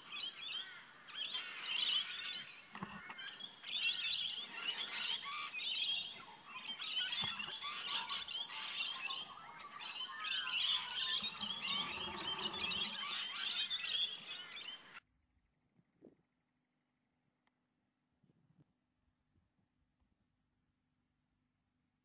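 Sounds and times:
parrots chattering and screeching: 9.9 - 14.8.

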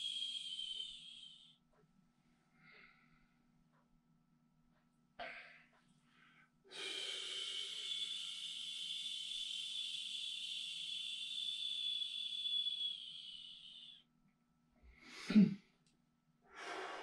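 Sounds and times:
man exhaling sss: 0.0 - 1.4, 6.7 - 13.9.

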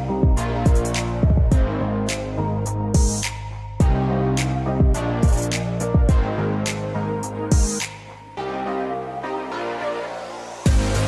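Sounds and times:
background music with held notes: 0.0 - 11.0
kick drum thump: 0.2 - 1.7, 3.8 - 4.0, 6.0 - 6.3.

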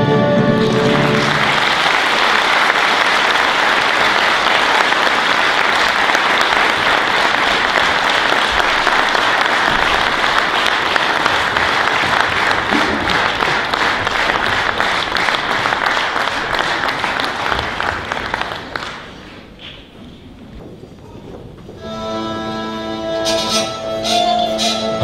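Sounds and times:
audience applauding: 0.5 - 19.6.

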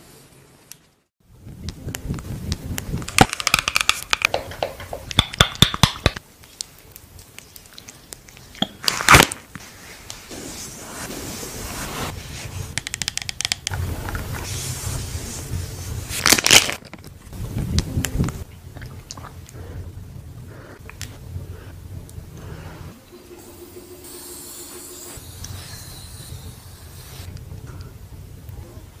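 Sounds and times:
crackling clicks: 1.6 - 10.2, 12.8 - 14.2
wipe rubbing on face: 9.6 - 12.8, 14.3 - 16.2
foil sachet crinkling and tearing: 16.1 - 17.0.

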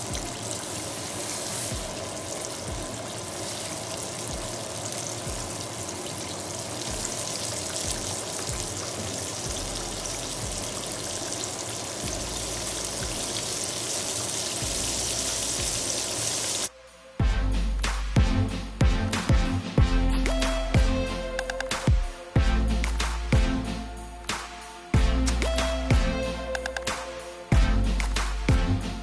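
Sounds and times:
food deep-frying in oil: 0.0 - 16.7.

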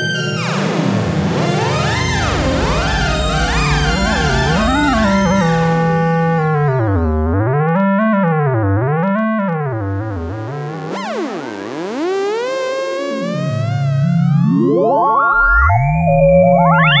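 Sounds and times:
theremin tones gliding: 1.2 - 7.8, 13.1 - 17.0.

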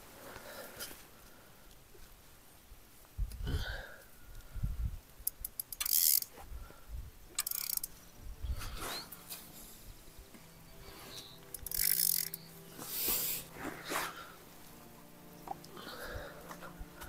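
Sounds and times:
fishing reel clicks: 5.2 - 6.4, 7.3 - 8.0, 11.4 - 12.6.

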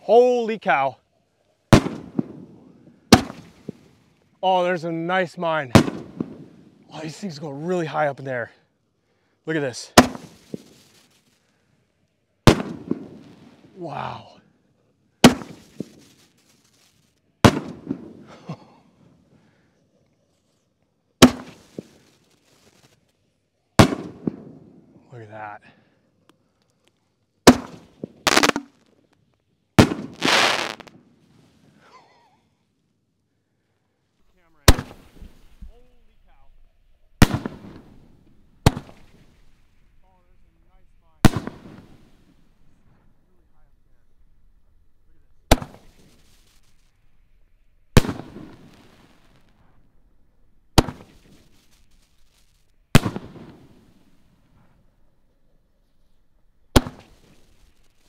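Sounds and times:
firework shells banging: 1.7 - 2.4, 3.1 - 3.9, 5.7 - 6.6, 27.5 - 28.8, 29.8 - 30.9, 34.5 - 58.0
rushing firework burst: 28.3 - 28.7, 29.8 - 30.9, 34.4 - 50.1.

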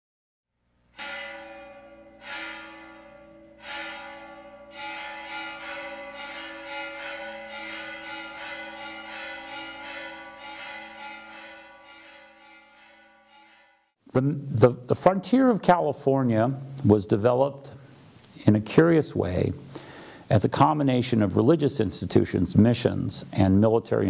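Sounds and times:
church bells ringing: 0.9 - 14.0.

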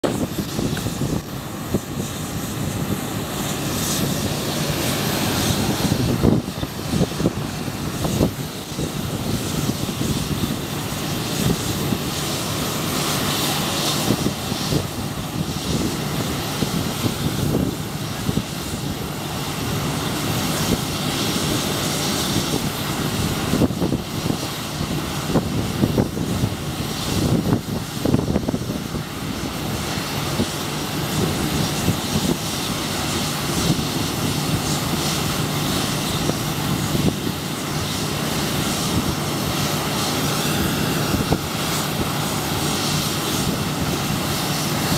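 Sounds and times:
jet engines rumbling: 0.0 - 44.9.

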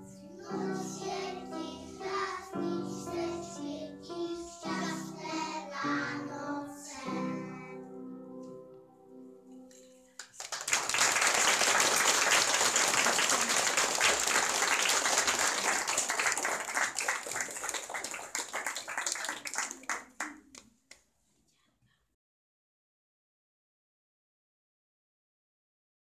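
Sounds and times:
children's song: 0.0 - 8.5
audience applauding: 10.2 - 20.7.

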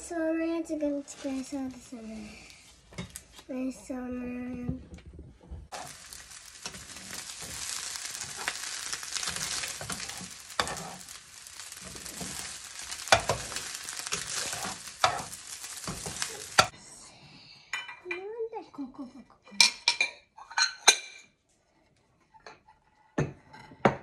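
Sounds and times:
eggs sizzling in frying pan: 0.9 - 3.3, 5.7 - 16.8.

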